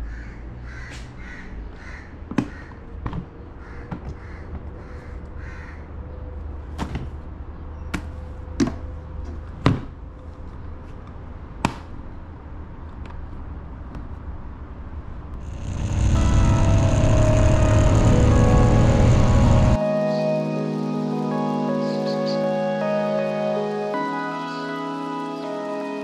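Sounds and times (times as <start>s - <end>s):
crow cawing: 0.0s - 2.8s, 3.6s - 5.9s.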